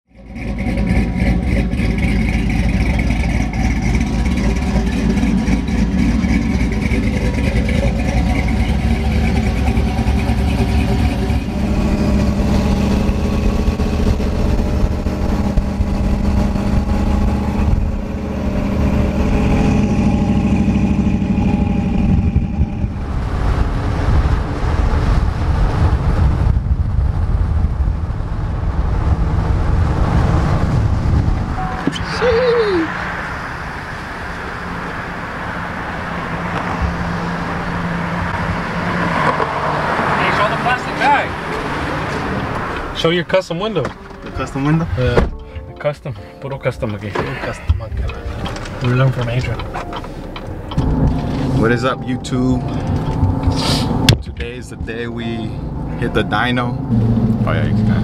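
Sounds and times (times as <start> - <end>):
road and tyre noise: 0.0 - 58.0
truck engine drone: 0.1 - 58.0.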